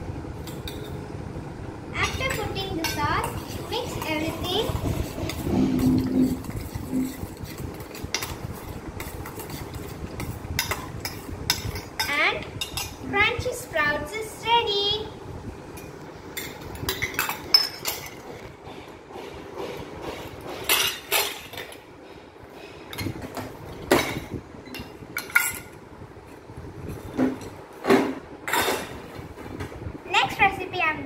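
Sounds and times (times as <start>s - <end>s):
utensils and dishes clinking: 2.0s - 13.0s, 15.8s - 18.5s, 20.0s - 21.8s, 22.9s - 25.8s, 28.4s - 29.1s.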